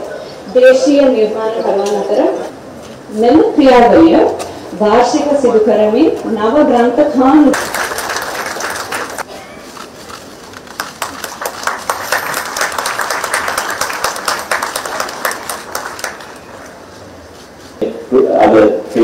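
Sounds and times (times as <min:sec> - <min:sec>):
audience applauding: 0:07.5 - 0:09.3, 0:10.7 - 0:16.7.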